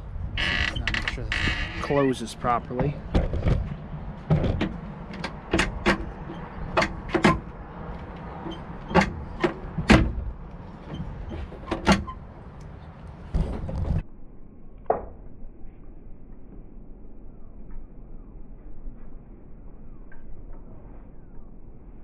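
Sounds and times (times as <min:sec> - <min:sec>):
glass door opening and shutting: 0:03.1 - 0:07.6, 0:08.2 - 0:12.3
door latch clicks and knocks: 0:04.3 - 0:07.5.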